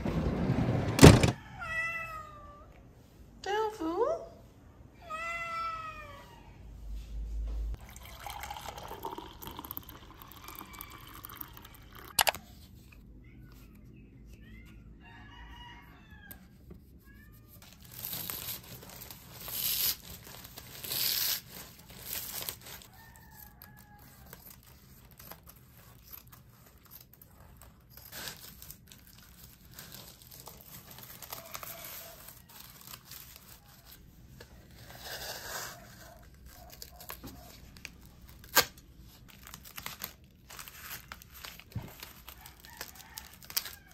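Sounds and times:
rooster crowing: 0:10.4 - 0:12.1, 0:15.0 - 0:16.5, 0:42.3 - 0:43.9
packing paper crinkling: 0:17.6 - 0:43.9.

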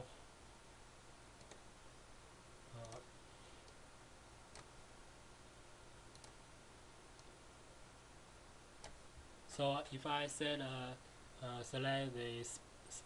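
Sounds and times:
faint low hum: 0:00.0 - 0:13.0
faint mouse clicks: 0:01.4 - 0:01.6, 0:02.8 - 0:03.8, 0:04.5 - 0:04.7, 0:06.1 - 0:06.4, 0:07.1 - 0:07.4, 0:08.8 - 0:09.0.

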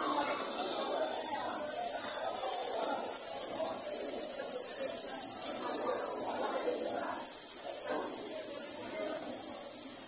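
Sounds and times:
faint background voices: 0:00.0 - 0:10.0
meat sizzling on grill: 0:00.0 - 0:10.0.

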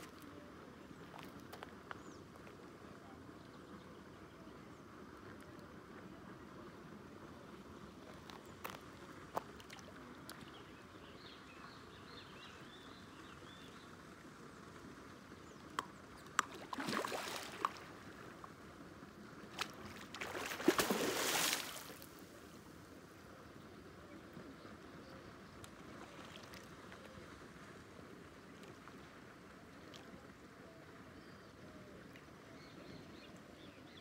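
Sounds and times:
fish splashing in water: 0:16.4 - 0:18.0, 0:19.6 - 0:22.1.

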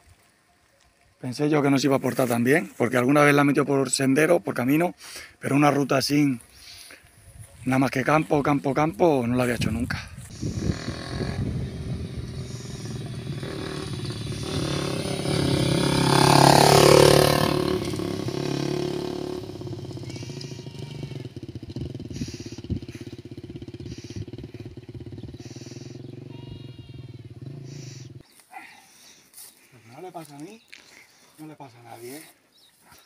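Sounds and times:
motorcycle riding past: 0:10.3 - 0:28.2.

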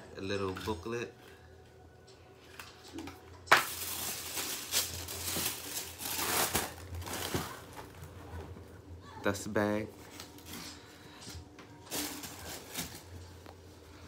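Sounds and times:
tissue paper crinkling and rustling: 0:03.5 - 0:08.4, 0:11.8 - 0:13.2.

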